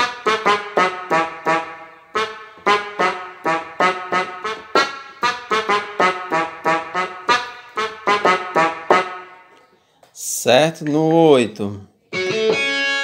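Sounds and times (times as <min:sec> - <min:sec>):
keyboard playing quick melody: 0:00.0 - 0:09.5, 0:12.1 - 0:13.0.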